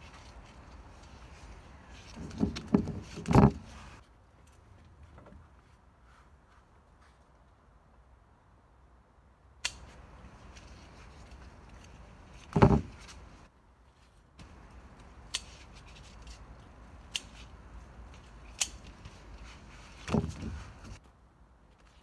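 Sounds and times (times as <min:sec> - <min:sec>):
shears snipping: 0:09.6 - 0:13.5, 0:14.4 - 0:21.0
dull thumps on plastic crate: 0:12.5 - 0:13.0.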